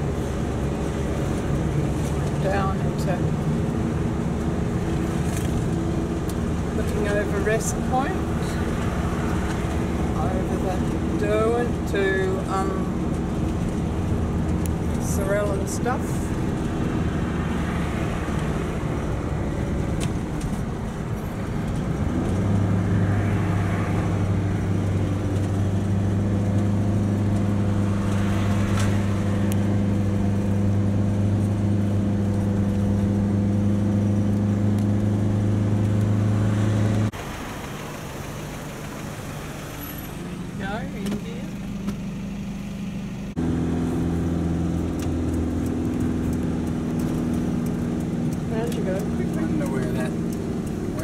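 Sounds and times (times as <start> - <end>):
car cabin road and engine drone: 0.0 - 51.0
quiet traffic: 0.0 - 51.0.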